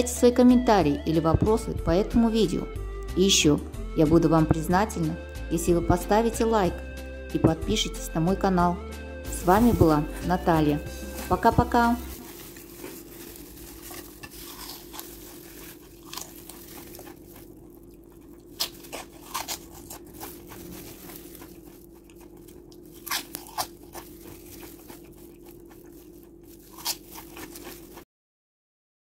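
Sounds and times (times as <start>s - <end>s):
low steady hum: 0.0s - 28.0s
crunchy snack being chewed: 10.9s - 28.0s.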